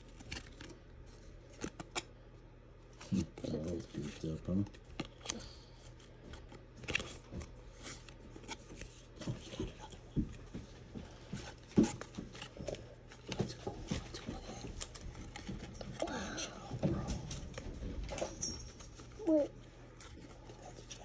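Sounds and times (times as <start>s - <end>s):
trading cards flipped by hand: 0.0s - 2.1s.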